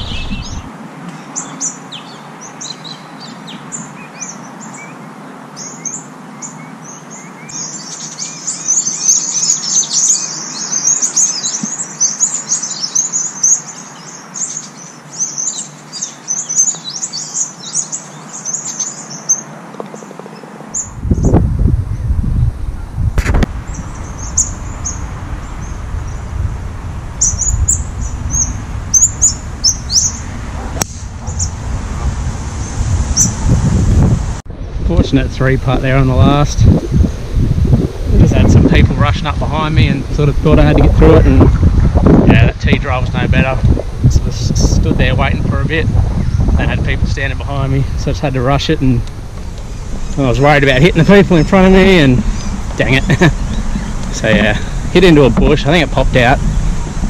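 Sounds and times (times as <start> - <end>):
wind buffeting microphone: 0.0 - 0.8, 20.7 - 57.0
small birds chirping: 0.0 - 26.5, 27.1 - 33.6, 34.7 - 57.0.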